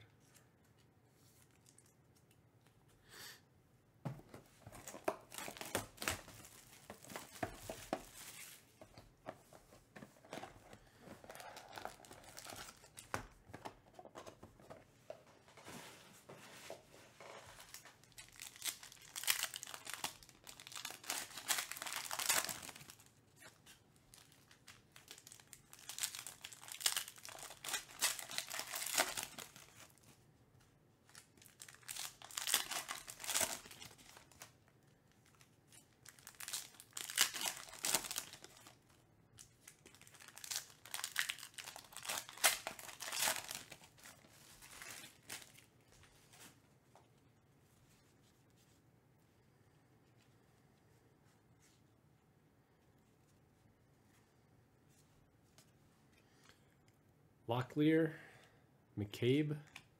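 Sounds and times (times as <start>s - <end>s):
foil wrappers crinkling and tearing: 4.8s - 8.7s, 11.1s - 13.1s, 17.6s - 30.1s, 31.1s - 46.5s.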